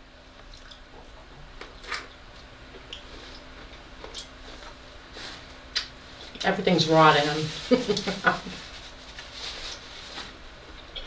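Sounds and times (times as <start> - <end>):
low steady hum: 0.0 - 11.0
person chewing: 0.4 - 4.6.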